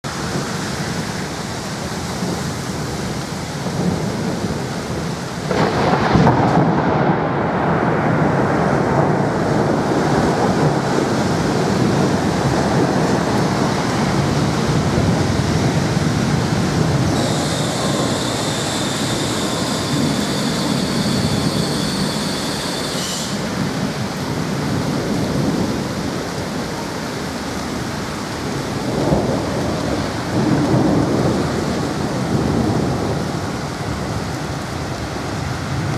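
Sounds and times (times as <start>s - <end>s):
heavy rain: 0.0s - 35.9s
thunder rumbling: 0.1s - 35.9s
thin high whine: 17.2s - 23.5s.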